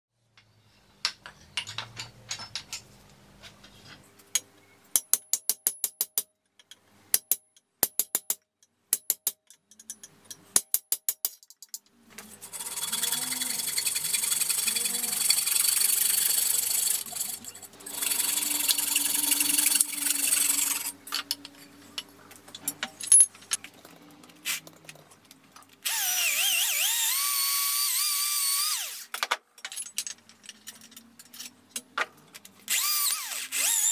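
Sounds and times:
electric drill boring wood: 12.4s - 21.0s, 25.8s - 29.1s, 32.7s - 33.9s.

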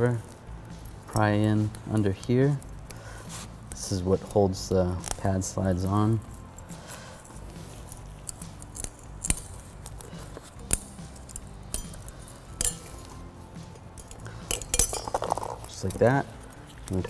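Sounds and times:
screwdriver clicking and scraping metal: 3.6s - 17.0s.

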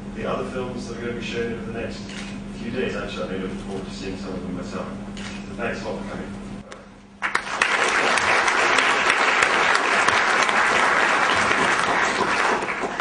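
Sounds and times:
audience applause: 7.2s - 13.0s.

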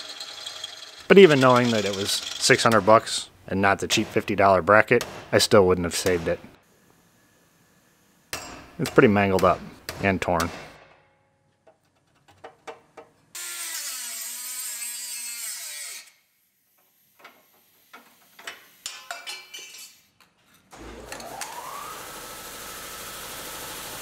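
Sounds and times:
tool spinning up: 0.0s - 2.6s
power tool running on metal: 20.8s - 24.0s.

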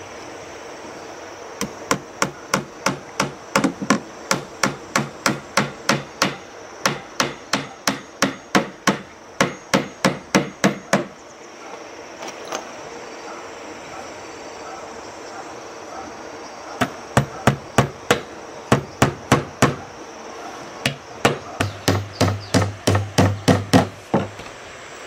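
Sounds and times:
hammer driving nails into wood: 1.6s - 11.1s, 16.8s - 19.8s, 20.8s - 24.3s.

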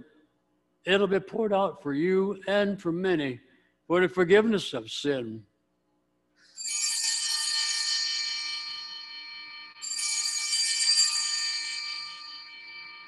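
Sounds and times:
small bells jingling: 6.4s - 13.0s.

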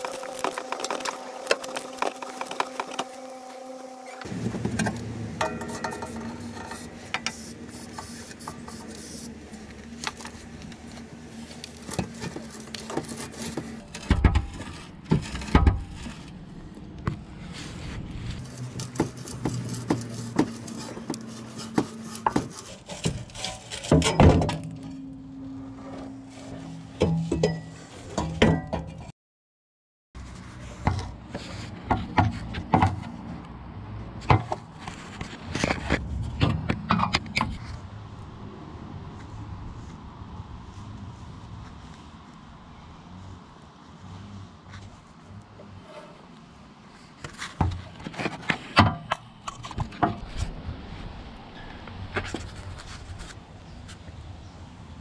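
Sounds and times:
metal clinks and scraping: 5.4s - 8.9s.

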